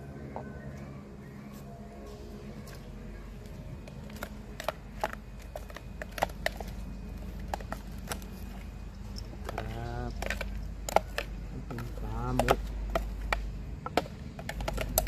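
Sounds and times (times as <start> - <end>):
low steady hum: 0.0 - 15.0
metal utensil tapping plastic jar: 9.4 - 15.0.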